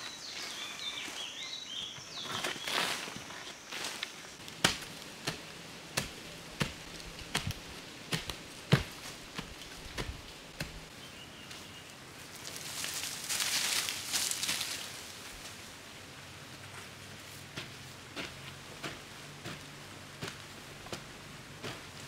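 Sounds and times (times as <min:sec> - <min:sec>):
soil scraped by hand: 0:00.0 - 0:10.9, 0:17.3 - 0:22.0
stick thudding into earth: 0:04.5 - 0:10.9.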